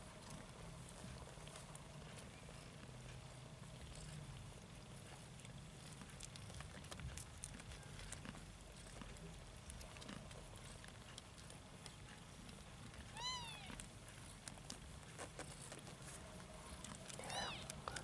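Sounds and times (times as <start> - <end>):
faint clicks from kittens nursing: 0.0 - 18.0
kitten mewing: 13.1 - 13.8, 17.1 - 18.0.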